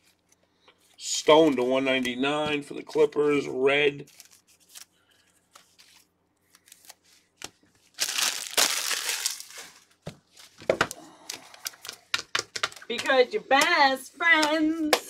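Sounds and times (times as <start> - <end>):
plastic wrapper crinkling: 4.0 - 13.1.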